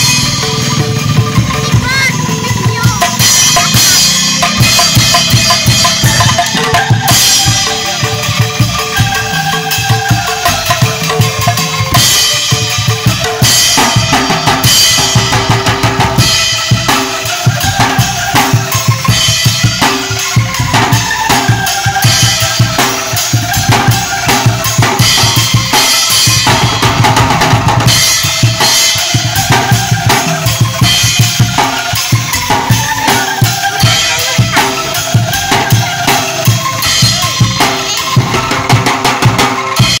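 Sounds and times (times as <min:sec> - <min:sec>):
marching snare drum: 0:00.0 - 0:40.0.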